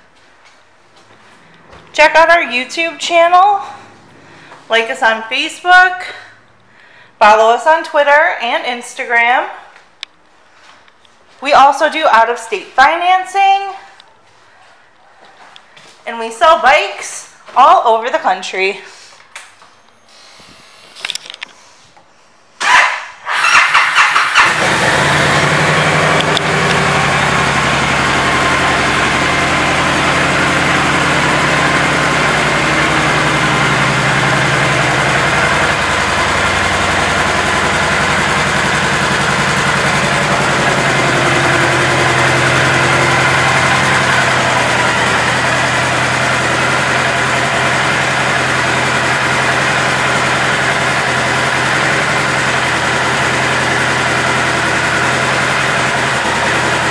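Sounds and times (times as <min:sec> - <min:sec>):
motorcycle engine idling: 0:23.5 - 0:56.9.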